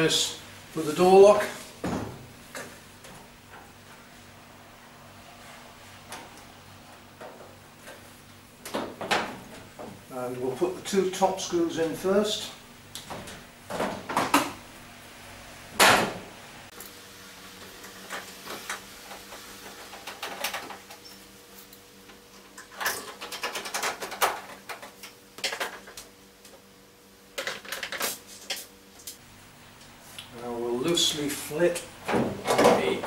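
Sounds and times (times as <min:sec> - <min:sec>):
faint steady hum: 0:24.0 - 0:33.0.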